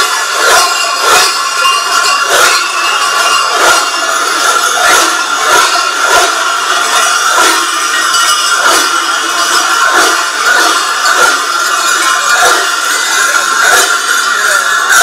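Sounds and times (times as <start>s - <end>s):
large cowbells clanging: 0.0s - 15.0s.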